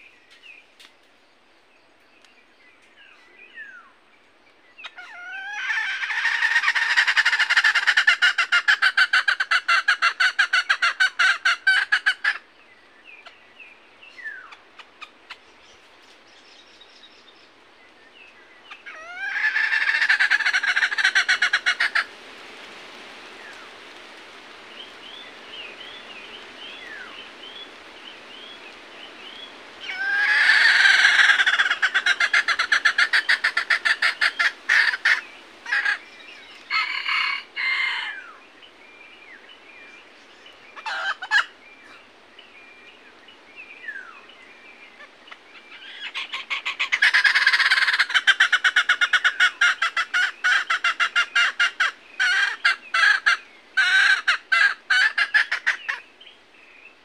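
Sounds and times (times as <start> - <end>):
junglefowl calling: 4.8 - 12.5, 18.6 - 22.2, 29.2 - 38.4, 40.8 - 42.1, 45.0 - 56.3
small birds chirping: 20.1 - 57.0.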